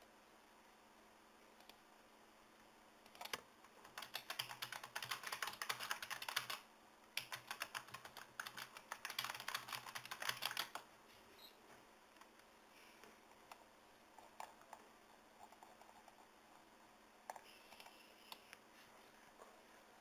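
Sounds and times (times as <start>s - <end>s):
typing on keyboard: 3.1s - 10.8s, 15.4s - 16.2s.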